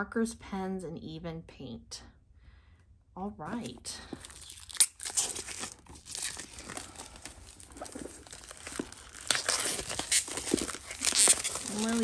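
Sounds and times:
plastic wrap crinkling and tearing: 4.1 - 12.0.

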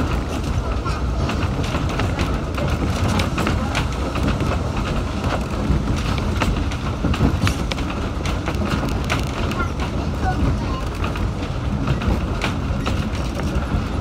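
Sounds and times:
tram rumbling on track: 0.0 - 14.0
wheels knocking over rail joints: 0.0 - 14.0.

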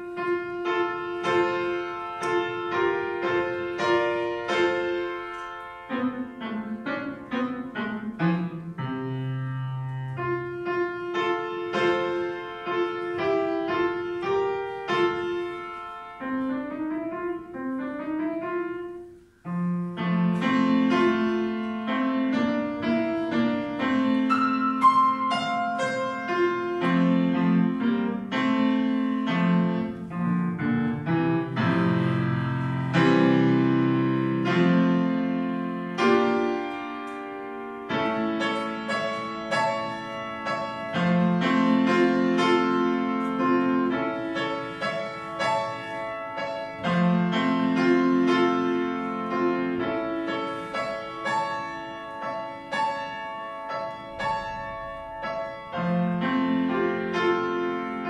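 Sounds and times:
solo piano: 0.0 - 58.0.

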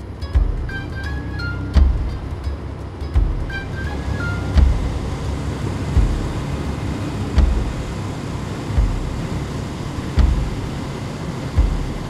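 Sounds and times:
motorcycle engine: 0.0 - 12.0
wind noise: 0.0 - 12.0
low thump: 1.8 - 2.4, 4.6 - 5.2, 7.4 - 7.9, 10.2 - 10.8.

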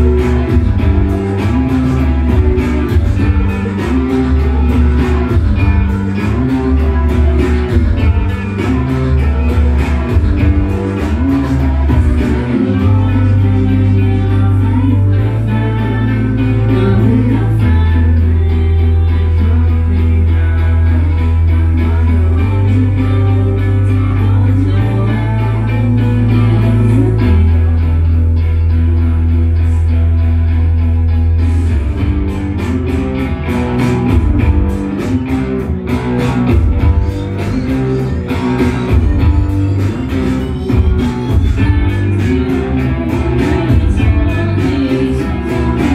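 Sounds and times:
steady drum beat: 0.0 - 13.0, 32.0 - 44.6
woman singing: 0.0 - 30.2, 36.2 - 45.9
bass: 0.0 - 45.9
electric guitar: 0.0 - 45.9.

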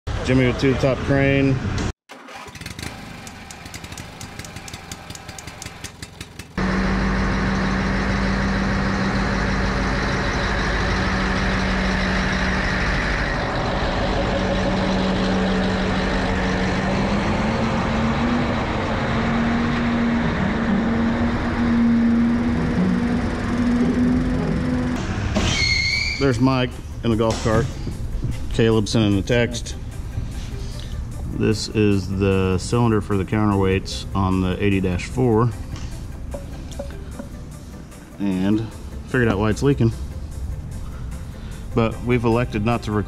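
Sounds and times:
crane diesel engine running: 2.4 - 25.4
rapid clicking: 3.2 - 6.6.

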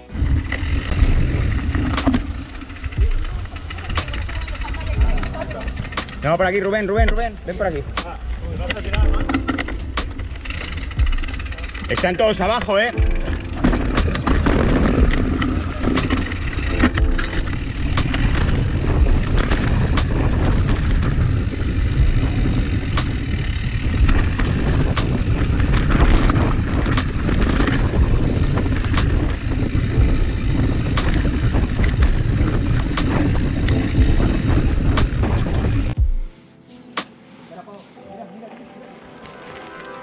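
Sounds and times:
motorcycle engine rumble: 0.0 - 36.4
sharp knocks and clicks: 1.8 - 2.4.

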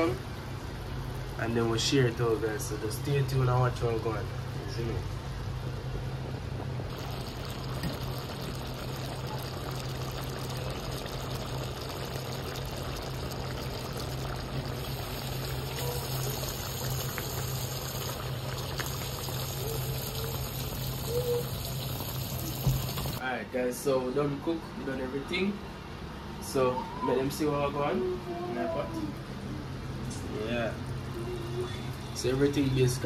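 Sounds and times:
water boiling in a pot: 5.4 - 23.2, 30.4 - 33.0.

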